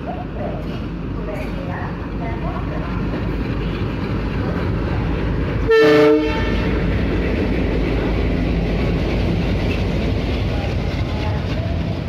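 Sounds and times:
diesel locomotive engine chugging: 0:00.0 - 0:12.0
multi-tone horn blast: 0:05.7 - 0:06.8.

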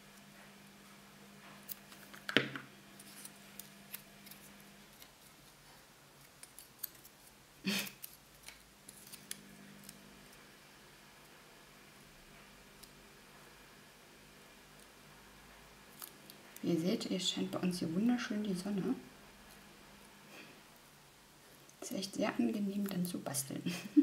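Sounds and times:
paper card rustling: 0:01.8 - 0:05.6, 0:08.0 - 0:10.0.

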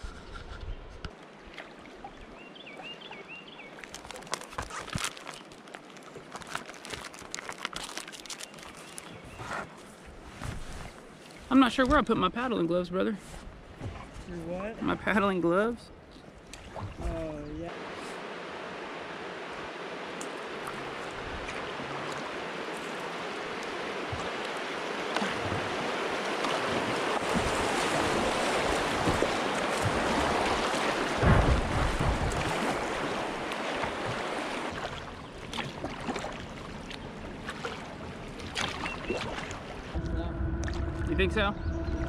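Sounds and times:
water lapping: 0:00.0 - 0:42.0
river water rushing and splashing: 0:16.3 - 0:41.2
low buffeting: 0:39.8 - 0:42.0.

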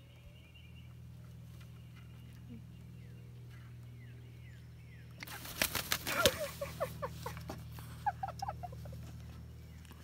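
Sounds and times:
bird wings flapping: 0:05.2 - 0:06.7.

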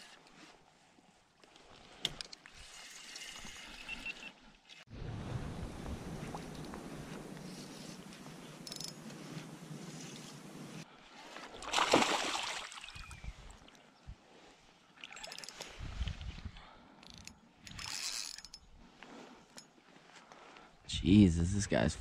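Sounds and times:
water sloshing and lapping: 0:09.4 - 0:16.2
water splash: 0:11.6 - 0:13.2.

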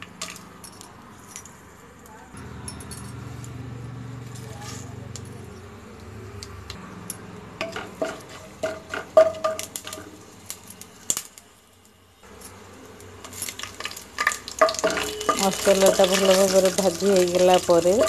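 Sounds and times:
spatula knocking and scraping pan: 0:07.6 - 0:10.0, 0:14.2 - 0:18.0
faint sizzle: 0:09.2 - 0:18.0.

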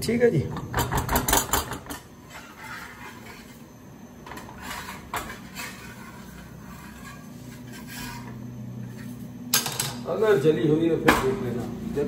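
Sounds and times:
metal spatula scraping iron pan: 0:02.2 - 0:03.6, 0:04.4 - 0:09.1.

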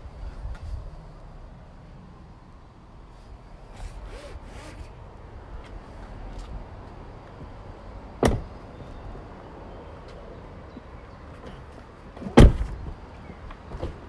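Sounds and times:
car door thump: 0:08.2 - 0:08.6, 0:12.2 - 0:13.0.

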